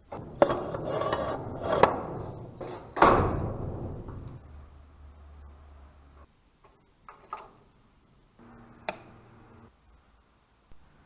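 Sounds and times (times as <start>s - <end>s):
scraping: 0.0s - 4.6s
knocks in metal garage: 0.2s - 4.5s.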